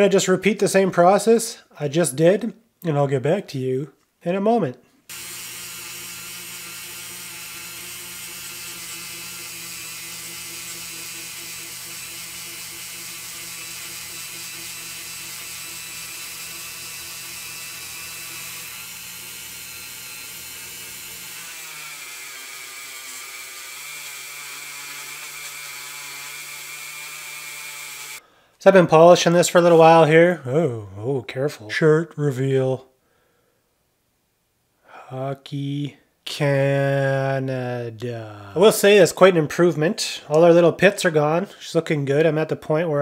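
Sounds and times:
rotary tool motor whine: 5.1 - 28.2.

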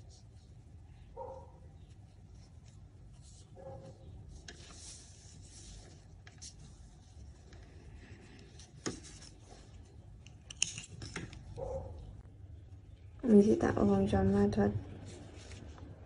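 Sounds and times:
yarn rubbing and rustling: 1.9 - 10.0.

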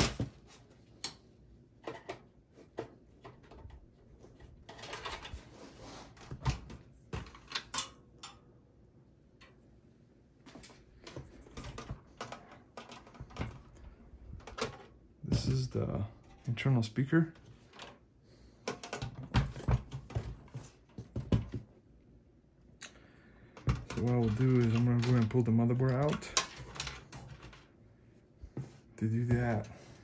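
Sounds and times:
metal computer case rattling: 23.7 - 27.6.

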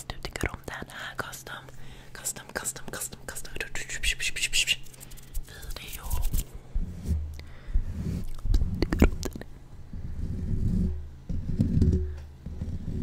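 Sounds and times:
hands rubbing a microphone: 4.5 - 13.0.

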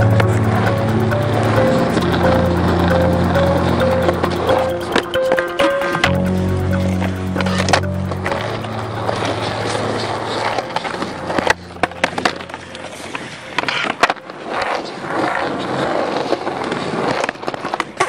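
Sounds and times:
background music: 0.0 - 14.3
skateboard wheels rolling on concrete: 0.0 - 18.0.

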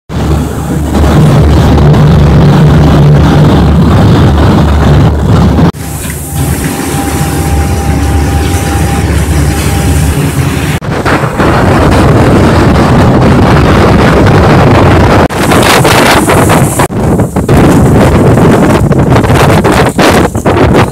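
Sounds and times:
boat engine droning: 0.1 - 16.7
wind buffeting microphone: 0.1 - 20.9.

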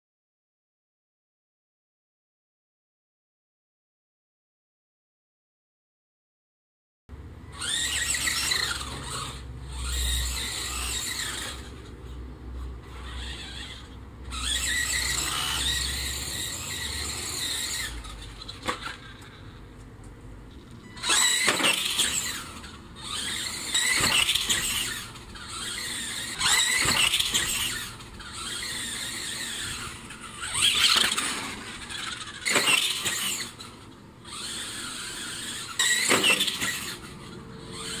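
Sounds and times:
electric motor whining: 7.5 - 19.5, 20.7 - 38.0.

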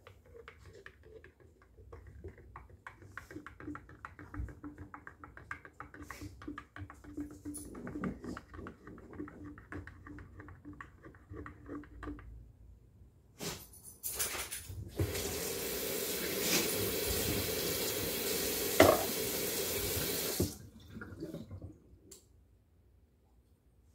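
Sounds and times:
faucet running into sink: 15.0 - 21.6.

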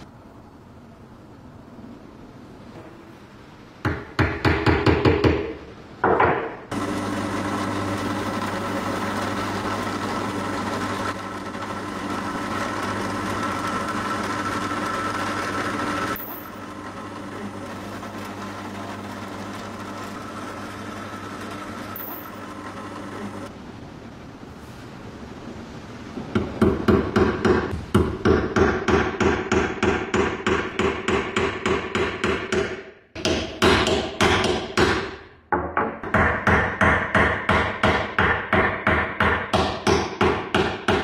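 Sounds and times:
electric drill boring into wood: 6.7 - 23.4.

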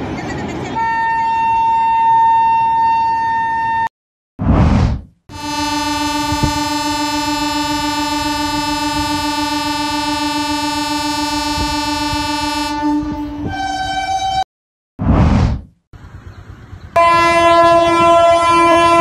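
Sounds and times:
train horn blast: 0.8 - 3.9, 5.3 - 14.4, 17.0 - 19.0.

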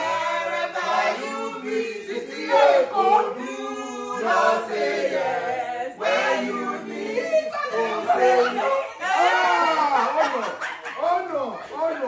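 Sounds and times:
group singing in chorus: 0.0 - 8.8.

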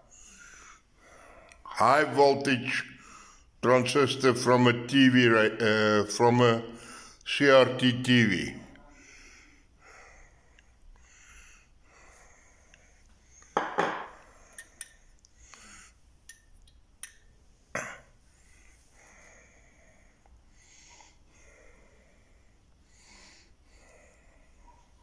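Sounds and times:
faint breathing: 0.0 - 1.7, 2.8 - 3.6, 6.7 - 7.3, 8.6 - 16.1, 18.2 - 25.0.

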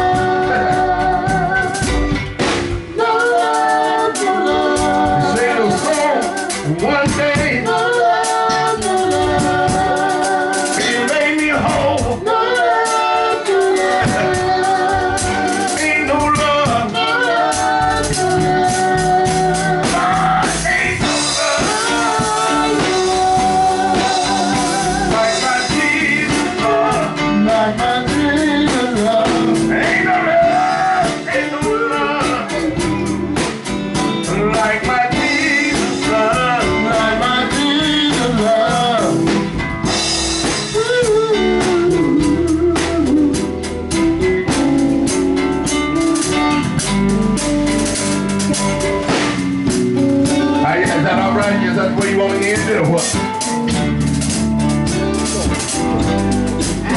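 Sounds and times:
male group singing in harmony: 0.0 - 2.0, 2.8 - 33.5, 34.2 - 39.5, 50.5 - 53.3
drum kit: 0.0 - 56.9
electric bass guitar: 0.0 - 56.9.

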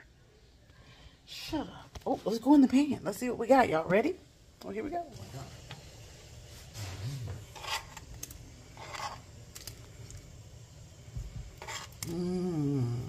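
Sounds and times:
dish scraping against pot rim: 6.7 - 8.1, 8.7 - 9.3, 11.6 - 12.0.

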